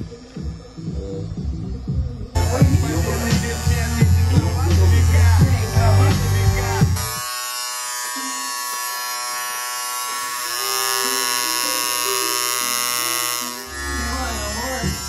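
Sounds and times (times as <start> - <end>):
tattoo machine buzzing: 0.0 - 15.0.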